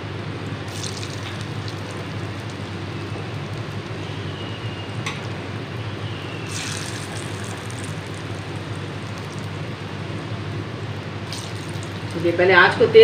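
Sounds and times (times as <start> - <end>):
low steady hum: 0.0 - 13.0
oil sizzling and bubbling: 0.1 - 12.4.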